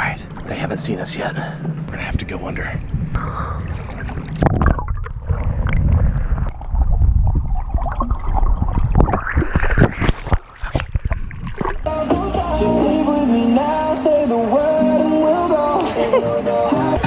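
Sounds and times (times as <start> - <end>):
underwater gurgling and bubbles: 2.7 - 11.9
pool water sloshing and splashing: 3.4 - 11.9
music: 11.9 - 17.0.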